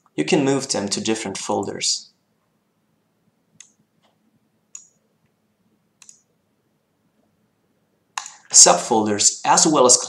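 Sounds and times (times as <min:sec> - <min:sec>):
room hiss: 0:00.0 - 0:10.0
computer mouse clicks: 0:03.6 - 0:05.0, 0:06.0 - 0:06.3, 0:08.2 - 0:08.4.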